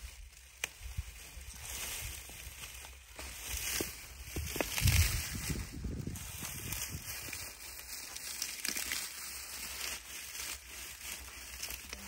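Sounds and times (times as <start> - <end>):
dry straw crackling and rustling: 0.0 - 12.0
straw snapping: 0.4 - 1.0, 8.1 - 9.2.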